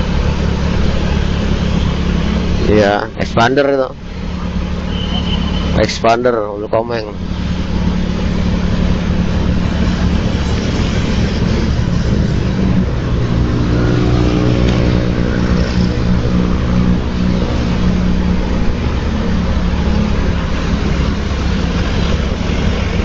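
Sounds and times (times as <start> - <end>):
higher engine note: 0.0 - 23.0
wind and road noise: 0.0 - 23.0
motorcycle engine running: 7.1 - 23.0.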